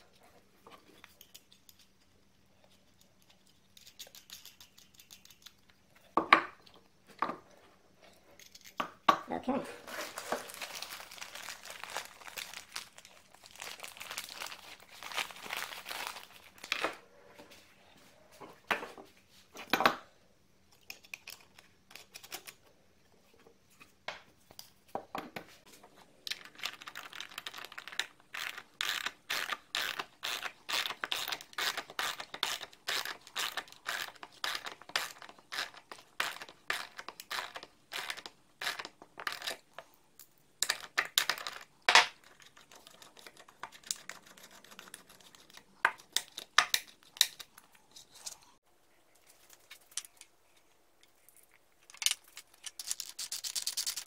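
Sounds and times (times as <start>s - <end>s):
crinkling and handling noises: 9.5s - 19.7s, 20.8s - 54.0s.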